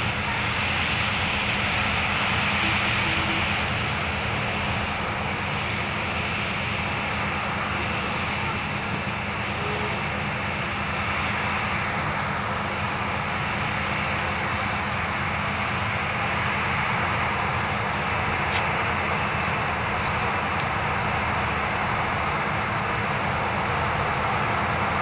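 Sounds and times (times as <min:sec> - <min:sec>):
jet engines rushing: 0:00.0 - 0:25.0.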